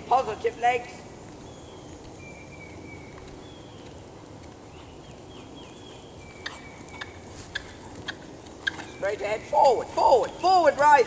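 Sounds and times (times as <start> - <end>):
birds whistling and chirping: 1.4 - 4.0, 4.6 - 9.3, 10.0 - 11.0.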